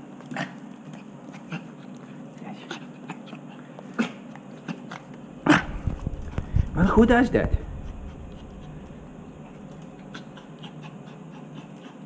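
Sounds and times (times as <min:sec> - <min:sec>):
small dog vocalizing: 0:07.6 - 0:12.0.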